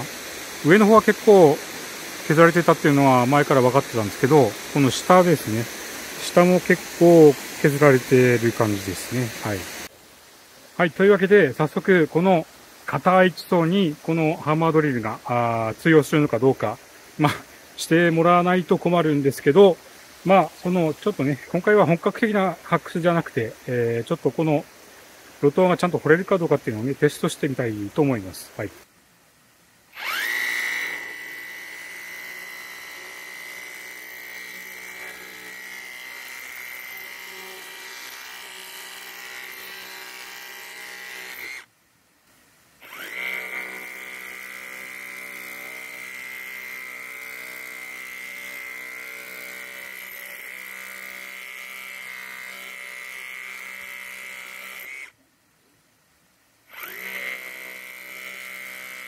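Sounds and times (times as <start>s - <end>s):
hammer drill chiselling rock: 0.0s - 9.9s, 30.0s - 41.7s, 42.8s - 55.2s, 56.7s - 59.0s.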